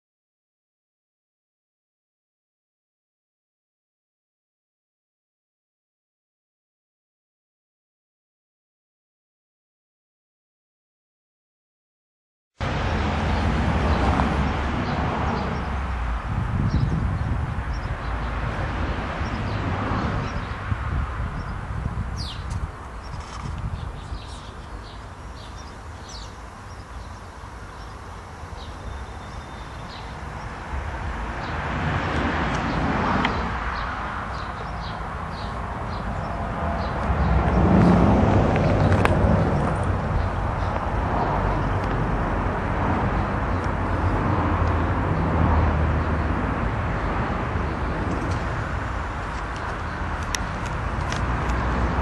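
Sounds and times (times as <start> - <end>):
vehicle passing: 12.6 - 22.4, 24.8 - 52.0
wind rumbling on microphone: 12.6 - 27.9, 28.5 - 52.0
birds chirping: 13.3 - 52.0.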